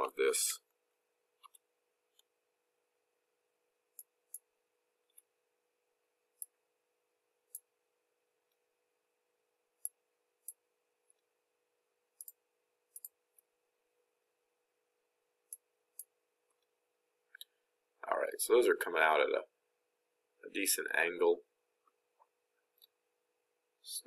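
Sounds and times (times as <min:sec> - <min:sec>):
computer mouse clicking: 0:12.2 - 0:13.5.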